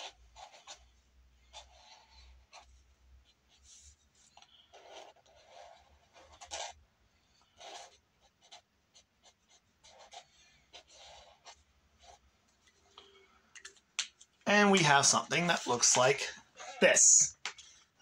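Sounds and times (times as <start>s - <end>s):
pencil scratching on paper: 0.0s - 12.9s.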